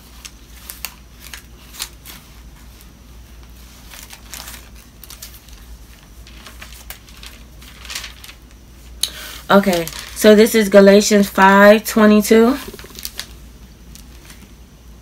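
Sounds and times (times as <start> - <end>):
paper pages rustling: 0.0 - 8.9, 9.6 - 10.4.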